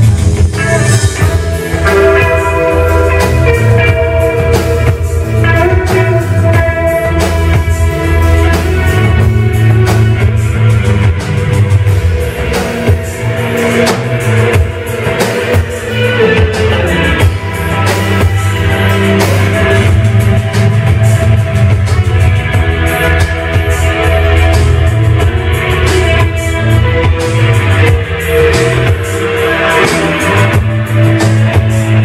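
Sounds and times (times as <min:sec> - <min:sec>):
live rock band playing: 0:00.0 - 0:32.0.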